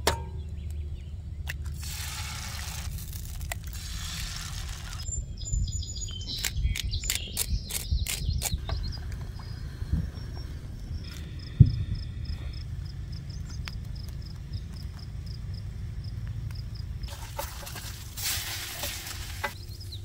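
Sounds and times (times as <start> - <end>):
birds chirping: 0.0 - 1.8, 3.8 - 20.0
wind rumble on microphone: 3.9 - 17.1.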